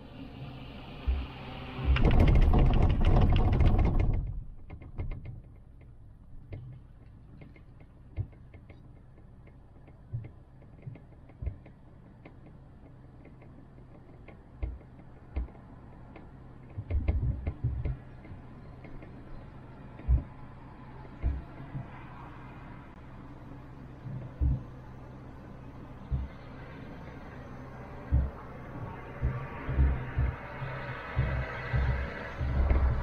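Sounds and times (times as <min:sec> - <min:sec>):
cable car low hum: 0:00.0 - 0:33.0
cable car rattling rumble: 0:00.0 - 0:33.0
light ticks and creaks: 0:01.0 - 0:23.0, 0:24.0 - 0:25.0, 0:25.7 - 0:33.0
low thumps: 0:19.9 - 0:22.0, 0:24.0 - 0:24.8, 0:26.0 - 0:27.3, 0:27.9 - 0:33.0.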